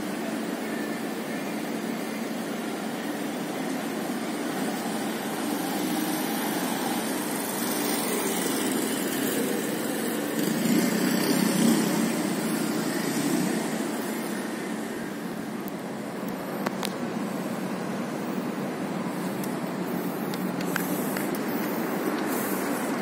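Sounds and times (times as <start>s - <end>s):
traffic hum: 0.0s - 23.0s
vehicle engine: 0.0s - 23.0s.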